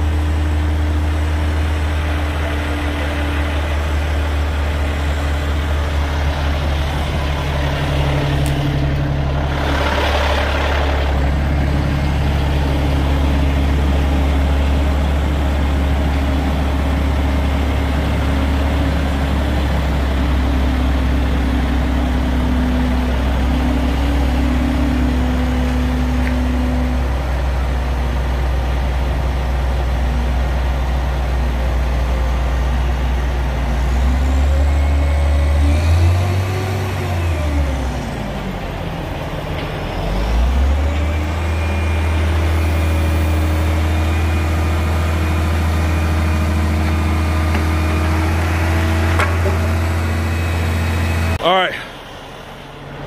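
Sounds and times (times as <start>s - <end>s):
heavy diesel engine droning: 0.0s - 53.0s.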